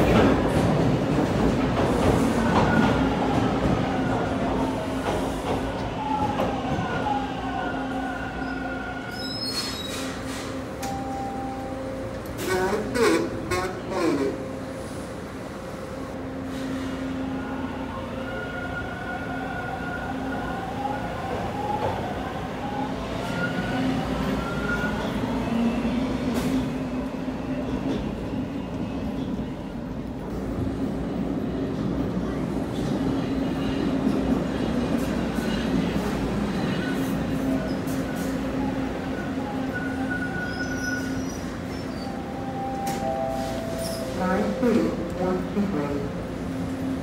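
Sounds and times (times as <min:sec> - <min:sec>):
train wheels rumbling on rails: 0:00.0 - 0:07.3
subway train rumble: 0:00.0 - 0:47.0.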